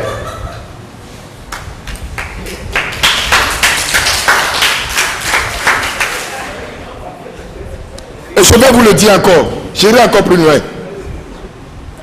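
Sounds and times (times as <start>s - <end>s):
audience applause: 1.9s - 6.6s.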